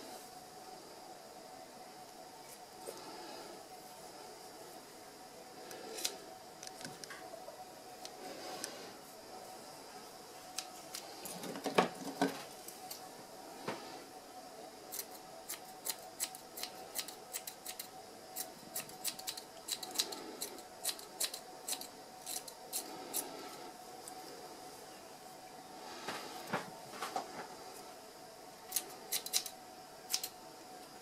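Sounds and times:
scissors snipping fur: 14.9s - 23.2s, 30.1s - 30.3s.

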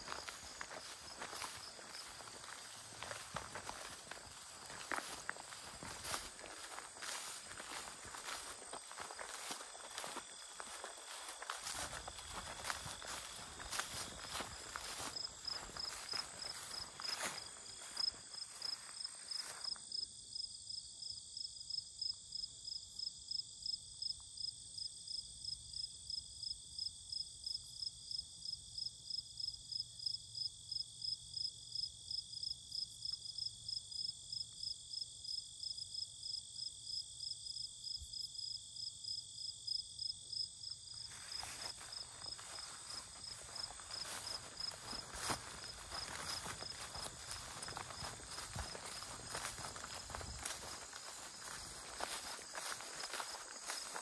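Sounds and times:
footsteps on grassy path: 0.0s - 20.0s, 40.9s - 54.0s
crickets and meadow insects chirping: 0.0s - 54.0s.

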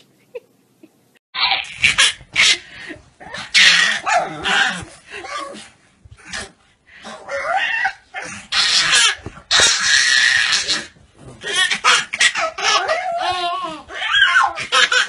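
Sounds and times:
baby shrieking with laughter: 1.4s - 2.6s, 7.5s - 15.0s.

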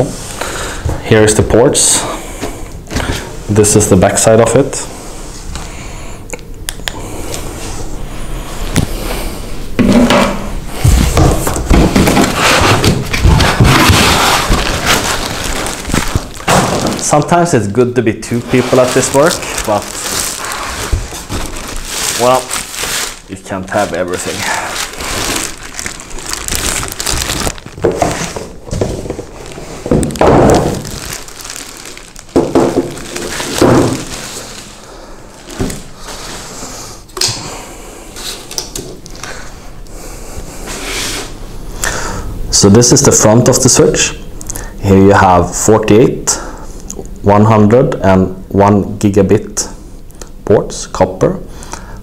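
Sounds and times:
plastic bag rustling: 10.7s - 36.8s
foam scraping on cardboard: 12.0s - 15.1s
foam creaking and squeaking: 12.0s - 17.4s, 18.3s - 28.4s, 29.2s - 34.6s.

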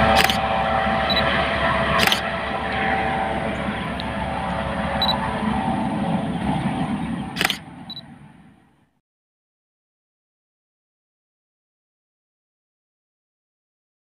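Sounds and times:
helicopter turbine and rotor: 0.0s - 8.8s
sharp clicks: 0.2s - 0.4s, 2.0s - 2.3s, 7.4s - 8.0s.

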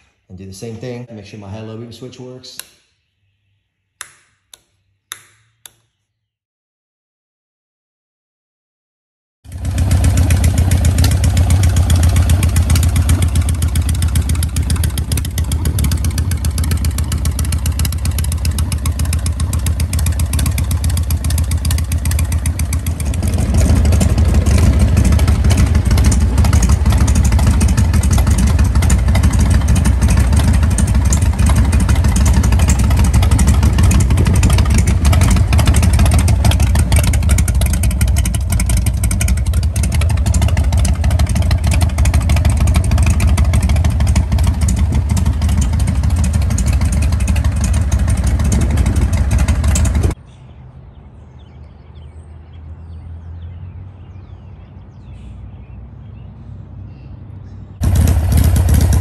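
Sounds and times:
motorcycle engine running: 9.5s - 50.2s, 57.8s - 59.0s.

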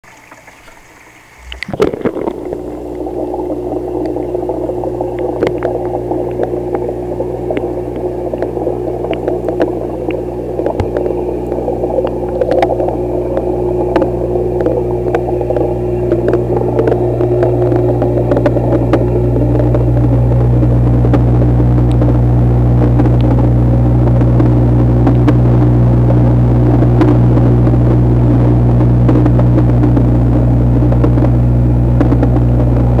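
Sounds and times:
aquarium pump humming underwater: 0.0s - 33.0s
small clicks and ticks: 4.0s - 20.2s.

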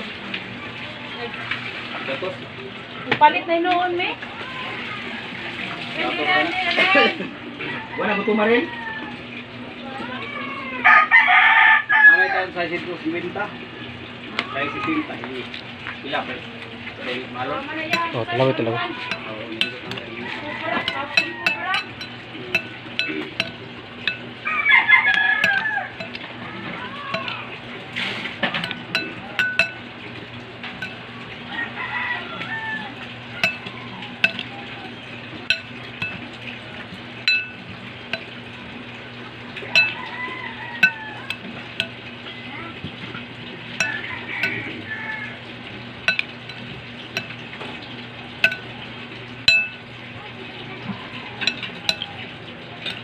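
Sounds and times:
rooster crowing: 10.8s - 12.4s, 20.2s - 21.9s, 24.4s - 26.1s, 31.5s - 33.8s, 39.8s - 41.4s, 43.8s - 45.4s
spoon clinking on ceramic bowl: 17.9s - 24.4s, 25.0s - 26.3s, 27.1s - 27.5s, 28.4s - 29.9s, 30.7s - 31.1s, 33.4s - 34.7s, 35.5s - 36.4s, 37.3s - 38.4s, 39.8s - 40.2s, 40.8s - 42.0s, 43.8s - 44.7s, 46.0s - 47.4s, 48.4s - 48.8s, 49.5s - 49.9s, 51.4s - 52.2s.

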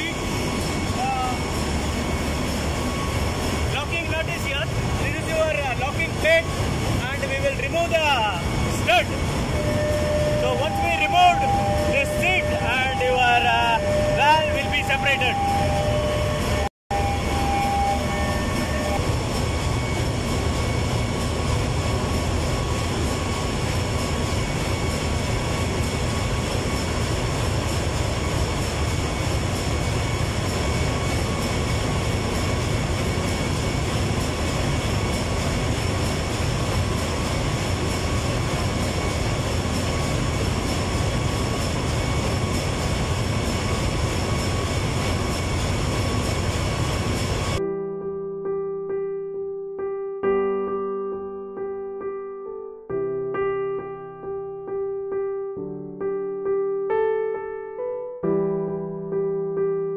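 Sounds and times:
high machinery whines: 0.0s - 47.6s
loud machinery drone: 0.0s - 47.6s.

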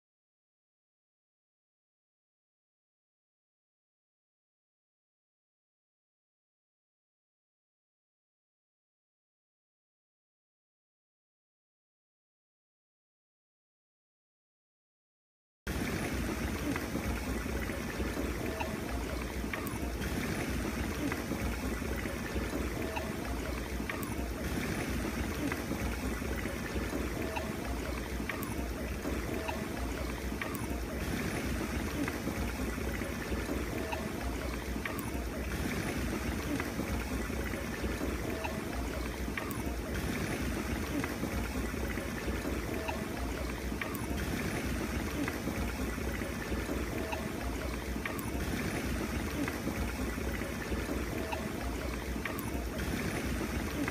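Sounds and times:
water bubbling and fizzing: 15.7s - 53.9s.

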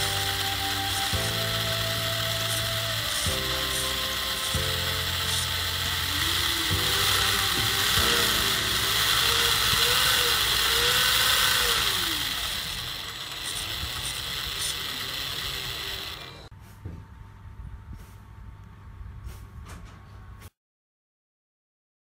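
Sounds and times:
motor gear whir: 0.0s - 16.5s.

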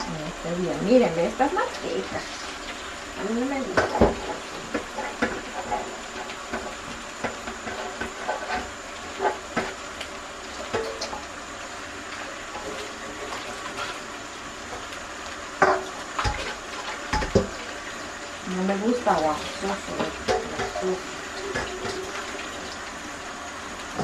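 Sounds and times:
dishes clinking and knocking: 15.6s - 17.6s, 20.0s - 20.9s, 21.5s - 22.1s
tap running into a sink: 15.6s - 17.6s.

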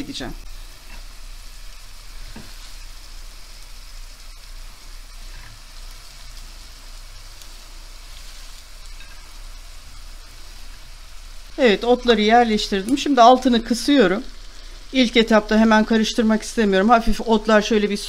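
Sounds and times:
vegetables sizzling in a pan: 0.0s - 18.0s.

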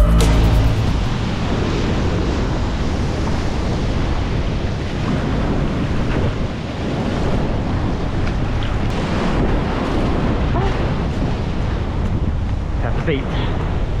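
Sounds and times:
wind buffeting microphone: 0.8s - 14.0s
surf washing on rocky shore: 1.0s - 14.0s.

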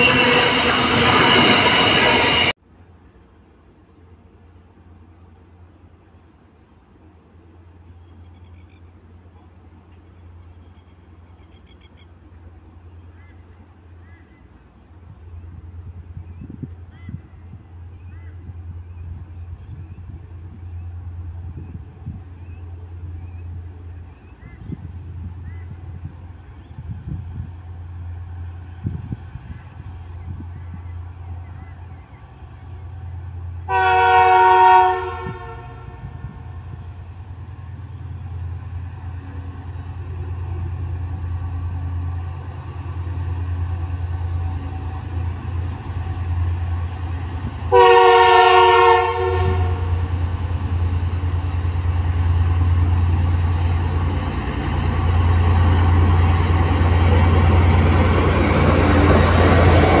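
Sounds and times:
train horn blasts: 0.0s - 2.6s, 33.7s - 36.4s, 47.7s - 50.1s
train wheels rolling: 0.0s - 2.6s, 34.8s - 60.0s
locomotive engine drone: 0.0s - 60.0s.

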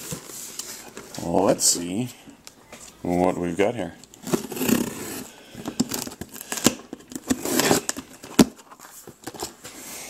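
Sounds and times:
tape tearing on cardboard: 4.2s - 8.5s.

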